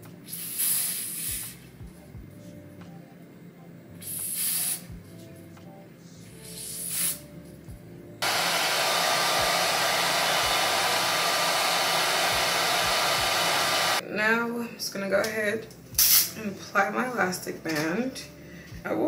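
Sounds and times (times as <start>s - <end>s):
aerosol spray hisses: 0.2s - 1.6s, 4.0s - 4.9s, 6.4s - 7.2s
hair dryer blowing: 8.2s - 14.0s.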